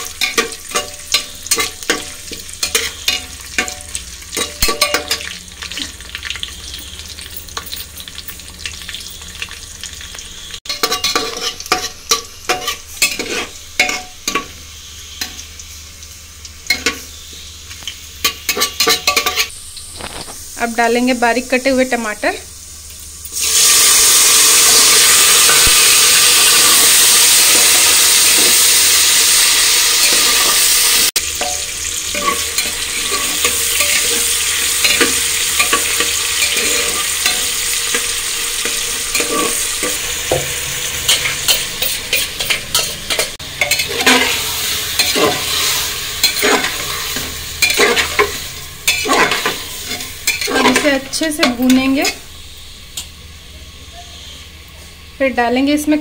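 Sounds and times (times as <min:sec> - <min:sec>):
tomatoes sizzling in hot oil: 0:00.0 - 0:56.0
metal spatula scraping a pot: 0:10.7 - 0:15.4, 0:18.2 - 0:19.5, 0:31.4 - 0:52.3.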